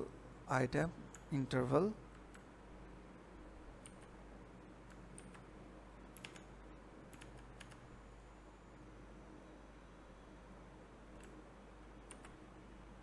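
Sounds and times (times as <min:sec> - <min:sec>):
faint mouse clicks: 0:11.1 - 0:11.4, 0:12.0 - 0:12.4.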